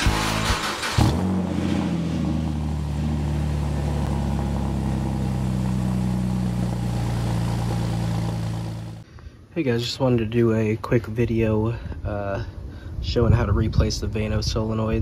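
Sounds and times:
car engine idling: 0.0s - 9.0s.

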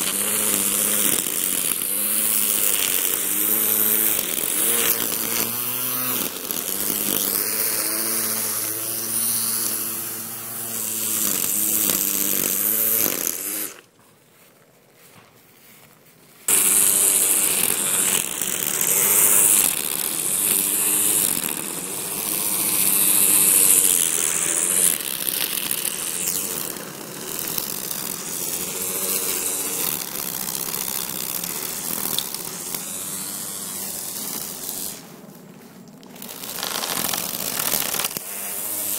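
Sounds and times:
trimmer line striking grass: 0.0s - 13.9s, 16.5s - 38.9s
string trimmer motor whine: 0.0s - 14.0s, 16.5s - 38.9s.

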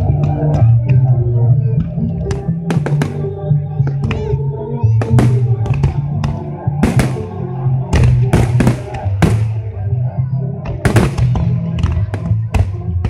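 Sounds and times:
music with deep bass: 0.0s - 13.0s
fireworks bangs: 6.8s - 9.7s, 10.8s - 11.5s.

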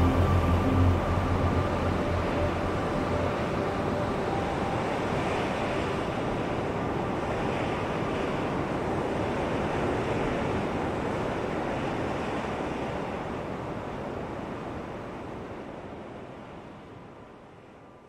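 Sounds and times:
flowing river water: 0.0s - 17.2s.

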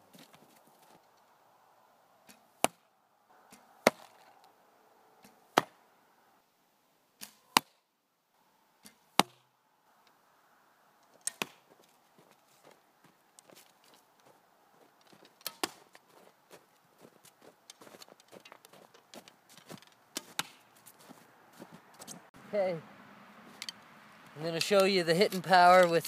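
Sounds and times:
arrows striking cardboard target: 2.2s - 2.9s, 3.5s - 4.4s, 5.2s - 5.8s, 8.8s - 9.4s, 11.2s - 11.7s, 15.2s - 16.0s, 19.2s - 20.7s.

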